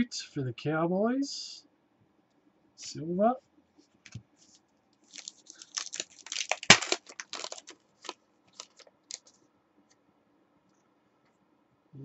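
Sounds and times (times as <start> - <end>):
foil wrapper crinkling and tearing: 5.0 - 9.4.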